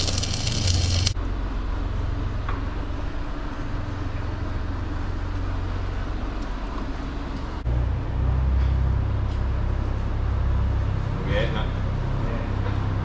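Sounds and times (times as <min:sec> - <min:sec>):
low machine drone: 0:00.0 - 0:13.0.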